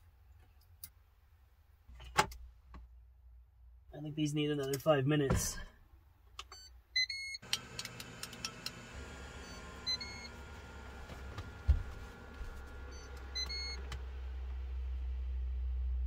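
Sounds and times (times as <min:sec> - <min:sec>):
air fryer fan whirring: 0:07.4 - 0:15.4
low hum: 0:07.4 - 0:16.0
control panel beeps: 0:09.4 - 0:10.3, 0:12.9 - 0:13.8.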